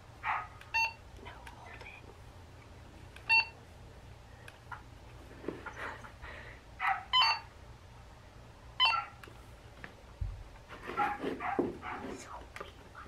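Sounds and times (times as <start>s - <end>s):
walkie-talkie beeping: 7.2s - 7.5s, 8.8s - 9.1s.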